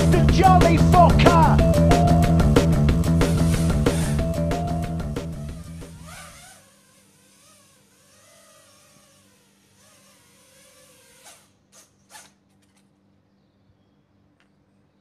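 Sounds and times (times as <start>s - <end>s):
drone motors whining: 3.0s - 12.2s.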